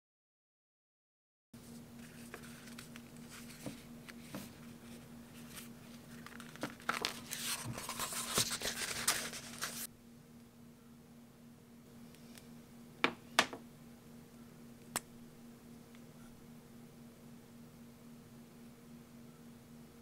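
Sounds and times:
faint steady hum: 1.6s - 20.0s
pages rustling: 2.0s - 9.9s.

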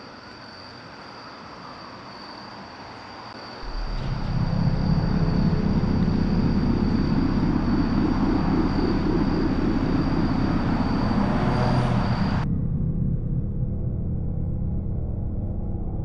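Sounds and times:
blower fan low rumble: 3.6s - 16.0s.

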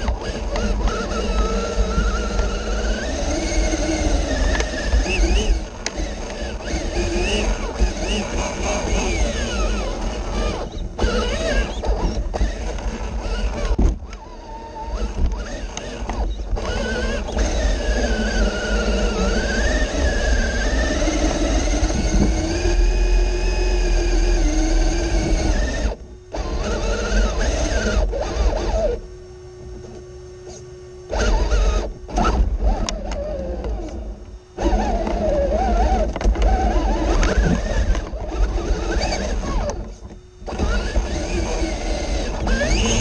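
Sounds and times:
electric motor and gear whine: 0.0s - 43.0s
low rumble of chassis on rock: 0.0s - 43.0s.

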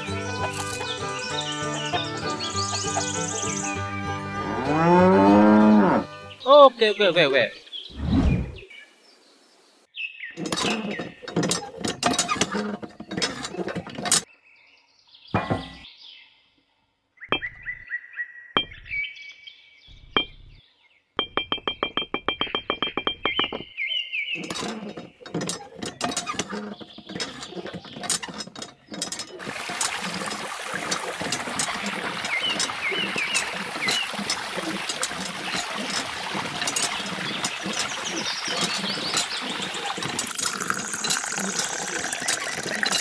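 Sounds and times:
high chirping tones and clinks: 17.3s - 18.0s, 18.6s - 19.1s, 19.9s - 20.6s, 21.2s - 23.8s.

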